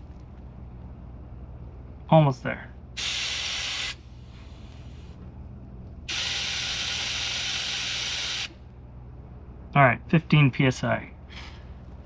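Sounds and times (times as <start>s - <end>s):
air hissing out of a tire: 3.0s - 5.2s, 6.1s - 8.6s.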